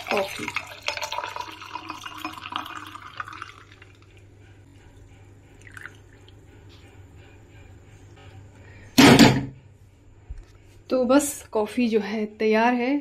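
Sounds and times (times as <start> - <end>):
coffee pouring over ice: 0.0 - 4.2.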